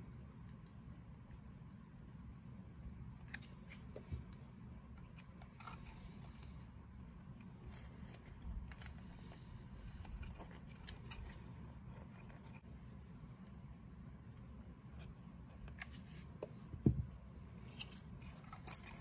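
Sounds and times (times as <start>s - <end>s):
paper crinkling and rustling: 17.7s - 19.0s.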